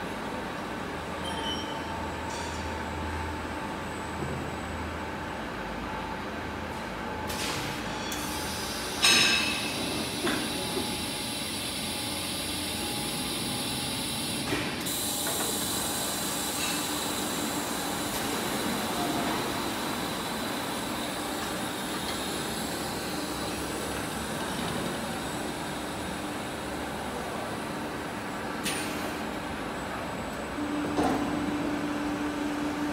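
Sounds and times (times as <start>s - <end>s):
machinery din with hiss: 7.3s - 11.4s.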